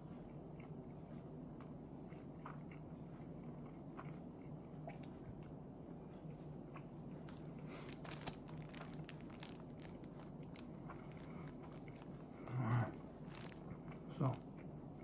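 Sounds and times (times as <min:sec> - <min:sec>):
plastic wrapper crinkling: 0:07.3 - 0:12.3, 0:13.2 - 0:13.6.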